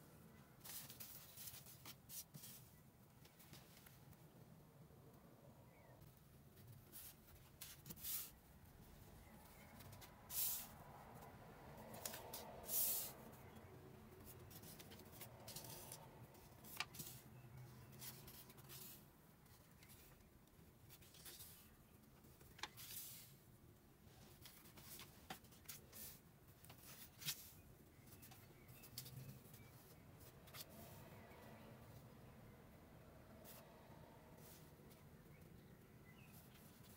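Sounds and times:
paper cards rustling: 14.2 - 20.2.

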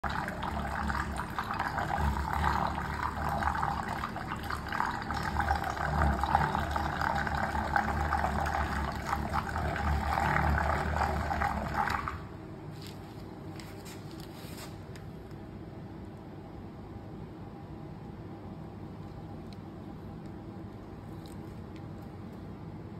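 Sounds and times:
electric stirrer humming: 0.0 - 12.9.

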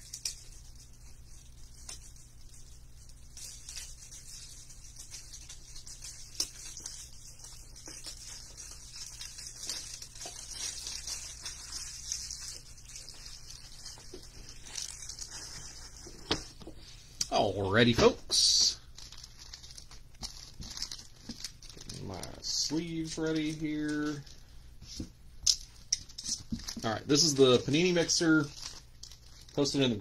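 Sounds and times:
faint clicks and rustles: 0.0 - 16.8.

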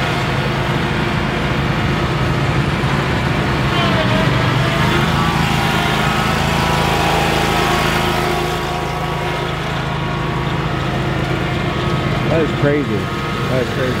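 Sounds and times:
mower engine droning: 0.0 - 14.0.

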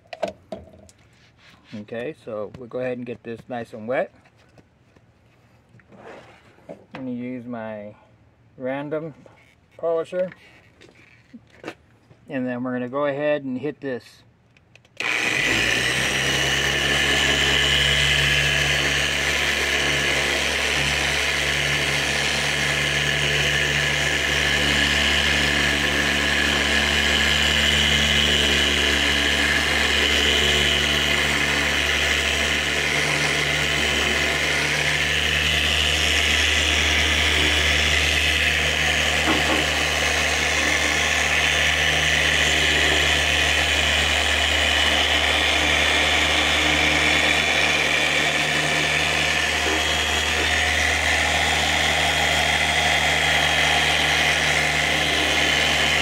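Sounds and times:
orbital polisher running: 15.0 - 56.0.

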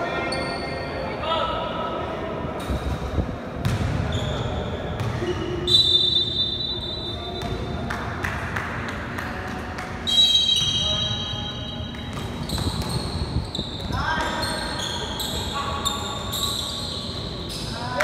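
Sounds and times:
sneaker squeaks: 0.1 - 1.0, 3.6 - 7.8, 10.0 - 18.0
basketball bouncing: 3.6 - 4.2, 5.0 - 5.3, 12.0 - 13.2.

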